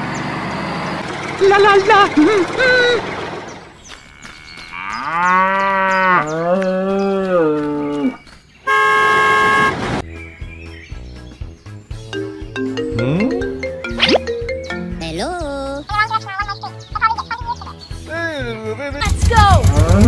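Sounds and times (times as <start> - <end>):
cow mooing: 4.0 - 8.2
loud horn-like tone: 8.7 - 9.9
soft music notes: 12.1 - 15.8.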